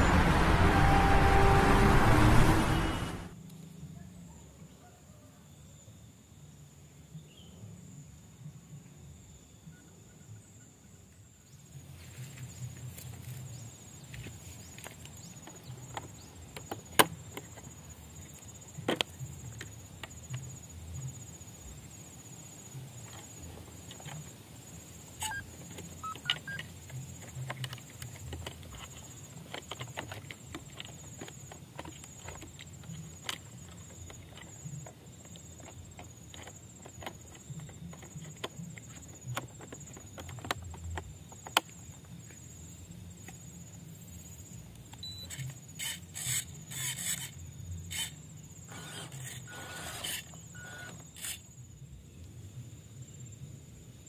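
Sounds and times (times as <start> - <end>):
insect trill: 5.3 - 54.0.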